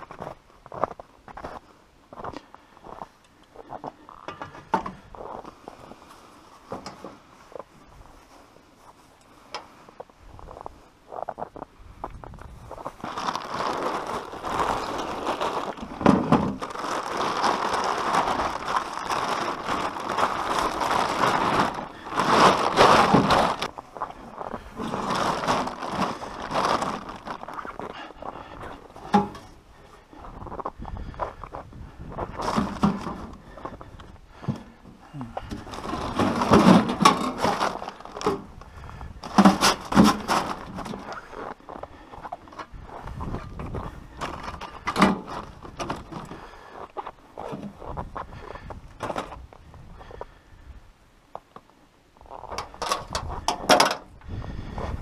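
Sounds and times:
gear scraping and handling: 0:12.4 - 0:29.6, 0:32.2 - 0:48.1
plastic tarp crinkling and rustling: 0:12.6 - 0:29.6, 0:32.2 - 0:34.5, 0:35.4 - 0:41.6, 0:42.5 - 0:46.6, 0:52.3 - 0:54.1.

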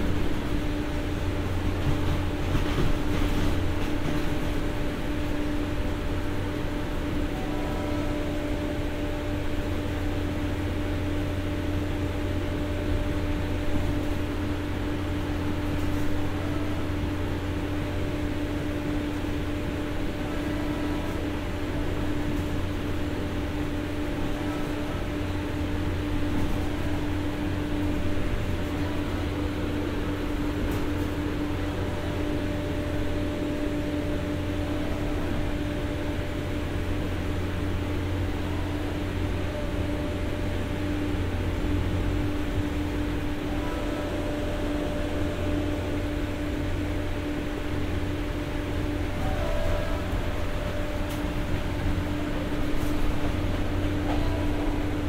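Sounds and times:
diesel generator droning: 0:00.0 - 0:55.0.

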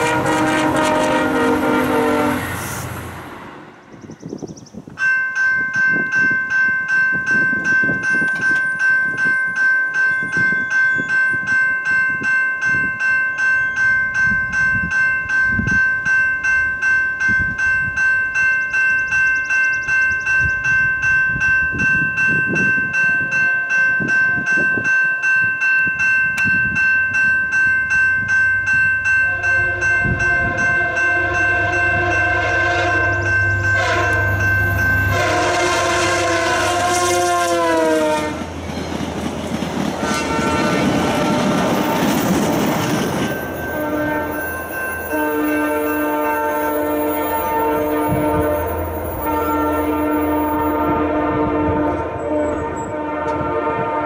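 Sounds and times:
diesel locomotive horn chord: 0:00.0 - 0:03.7, 0:23.2 - 0:24.1, 0:29.2 - 0:38.6, 0:40.0 - 0:42.0, 0:43.6 - 0:54.0
railroad crossing bell ringing: 0:00.0 - 0:04.2, 0:04.9 - 0:54.0.

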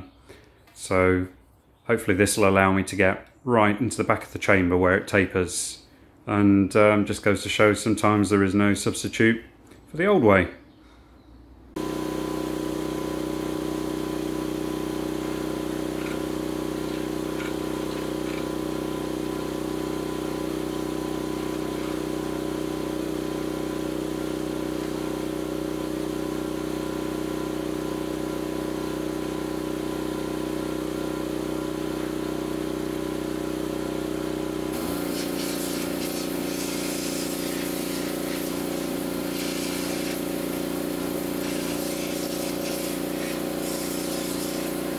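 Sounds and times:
pressure washer motor running: 0:11.7 - 0:44.9
hiss of spraying water: 0:11.8 - 0:25.5, 0:34.7 - 0:44.9.

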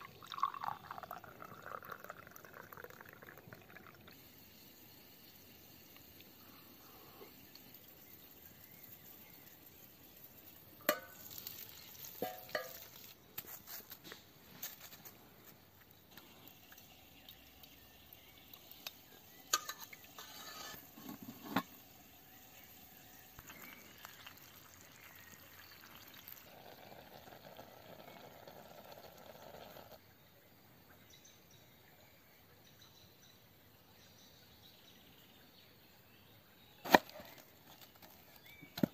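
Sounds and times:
faint steady hiss: 0:00.0 - 0:38.9
metal cookware clinking: 0:10.8 - 0:11.3, 0:12.2 - 0:13.0, 0:19.5 - 0:19.9.

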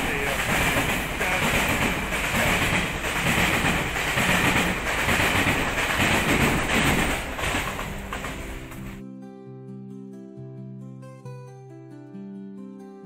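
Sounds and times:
train wheels rushing on rails: 0:00.0 - 0:09.0.

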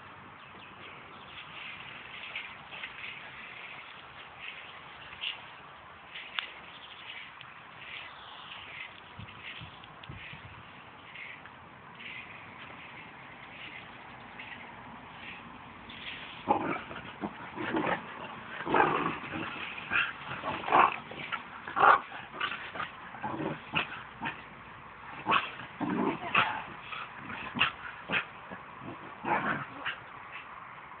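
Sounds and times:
dogs barking and yipping: 0:12.0 - 0:30.6.

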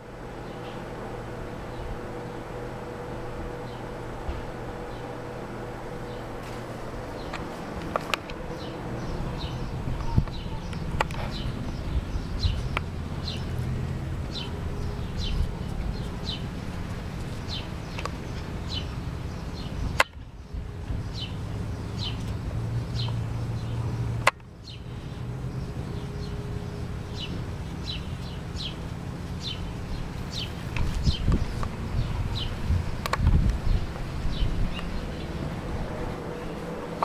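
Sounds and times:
steady low rumble: 0:00.0 - 0:37.0
bird chirping: 0:07.1 - 0:16.5, 0:17.4 - 0:37.0.

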